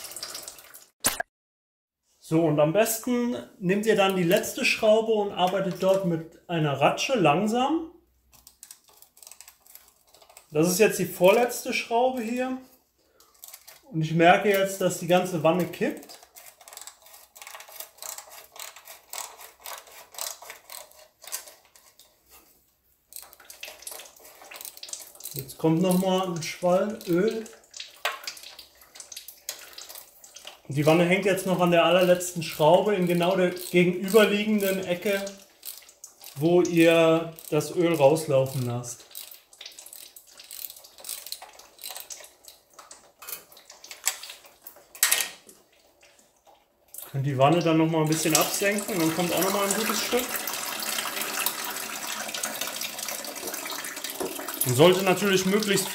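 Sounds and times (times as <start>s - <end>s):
hand ratchet clicking: 16.2s - 21.7s, 33.5s - 34.9s, 37.3s - 42.2s
ratchet clicking on metal: 33.6s - 34.8s, 37.3s - 37.8s, 38.5s - 42.1s.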